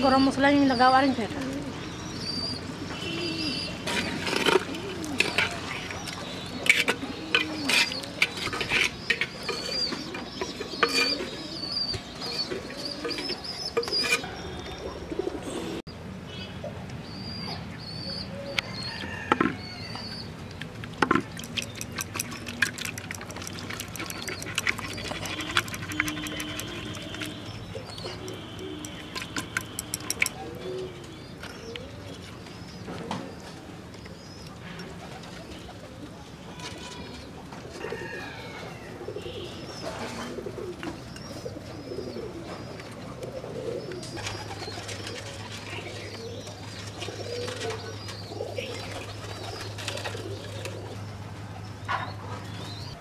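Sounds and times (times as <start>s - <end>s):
birds chirping: 0.0s - 53.0s
metal spatula scraping clay pot: 3.8s - 11.4s, 12.2s - 14.4s, 21.4s - 30.4s.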